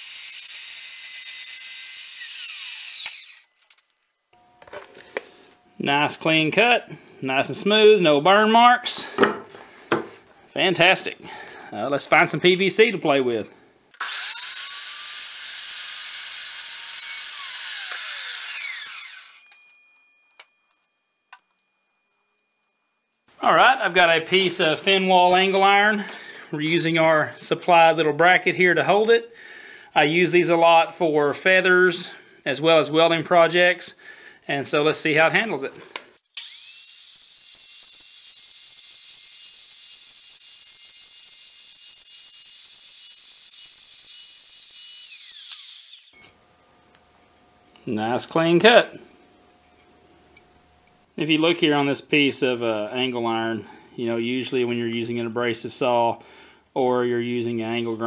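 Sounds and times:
chop saw cutting pipe: 0.0s - 3.5s, 14.0s - 19.5s, 36.3s - 46.3s.

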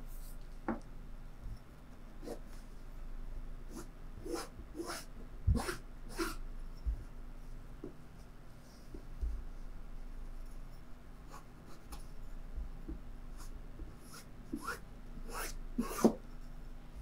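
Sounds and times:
faint steady hum: 0.0s - 17.0s
chalk scratching across fabric: 3.7s - 6.4s, 13.4s - 16.2s.

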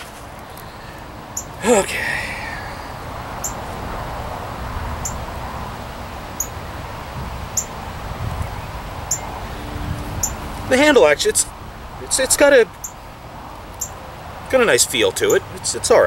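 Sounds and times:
rustling and handling noise: 0.0s - 0.8s.

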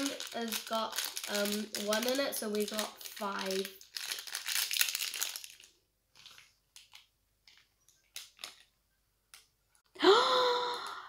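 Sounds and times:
plastic bag crinkling and tearing: 0.0s - 8.8s.

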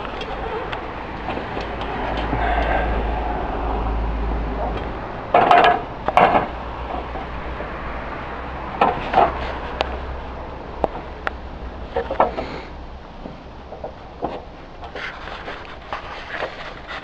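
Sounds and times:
clay roof tiles clattering: 4.6s - 7.3s, 8.8s - 9.8s, 12.0s - 12.7s.

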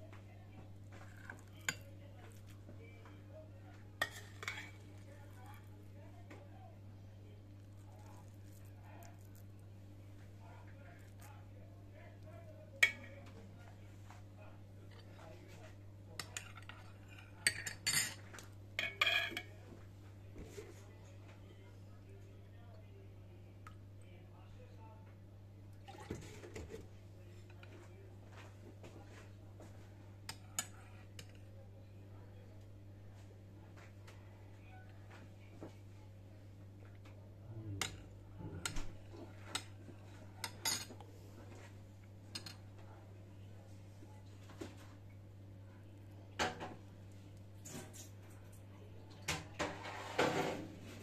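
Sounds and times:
steady low hum: 26.8s - 49.1s.

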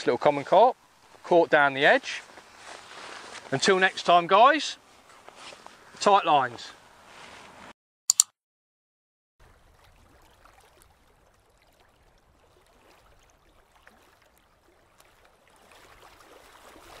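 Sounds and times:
water lapping and trickling: 0.0s - 3.8s, 9.4s - 17.0s.

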